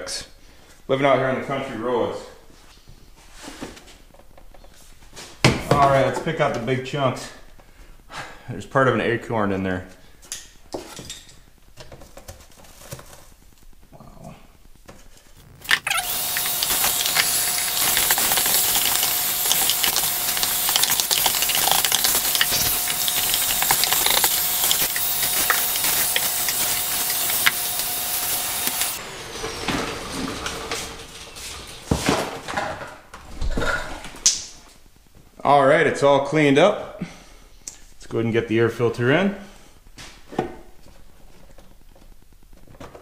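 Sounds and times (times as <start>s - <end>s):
debris rattling up hose: 15.3s - 32.8s
vacuum cleaner hiss and whine: 15.4s - 32.3s.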